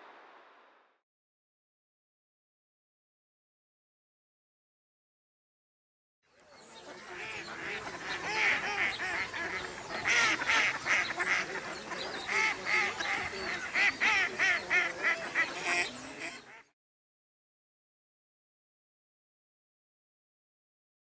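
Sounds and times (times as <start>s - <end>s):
ducks calling: 6.4s - 16.7s.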